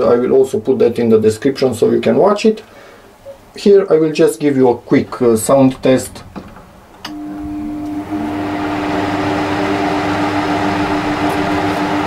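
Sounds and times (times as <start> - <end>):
dehumidifier hum: 0.0 - 12.0
blower fan rushing: 5.8 - 12.0.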